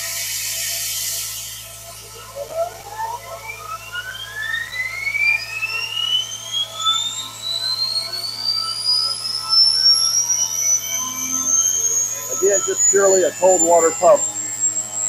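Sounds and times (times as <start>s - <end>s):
air-driven water pump whining: 0.0s - 15.0s.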